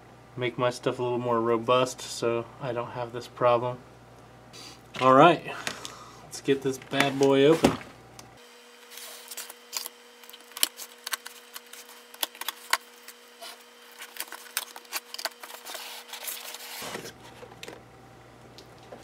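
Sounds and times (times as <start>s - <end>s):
cardboard box crackling and scraping: 15.1s - 17.3s.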